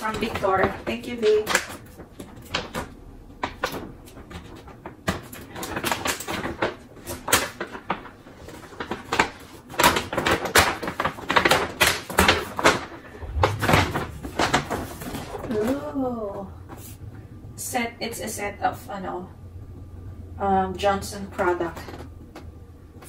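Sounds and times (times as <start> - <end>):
paper bag rustling and crinkling: 3.6 - 15.8.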